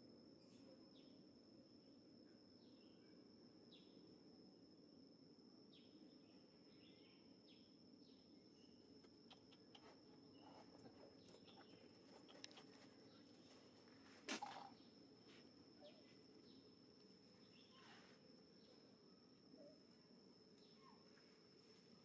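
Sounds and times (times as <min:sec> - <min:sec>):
faint chirps: 0:05.7 - 0:22.0
faint ticks: 0:10.8 - 0:12.9.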